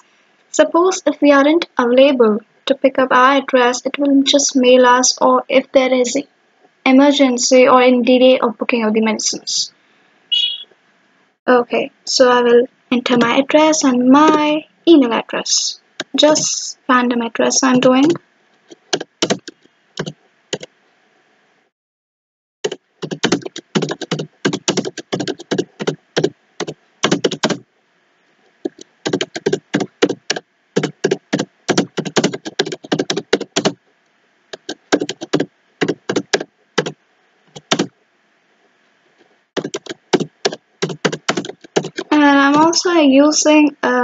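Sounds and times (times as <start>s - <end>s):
keyboard typing: 13.1s - 13.4s, 16.0s - 16.4s, 17.7s - 20.7s, 22.6s - 27.6s, 28.6s - 33.8s, 34.5s - 37.9s, 39.6s - 42.8s.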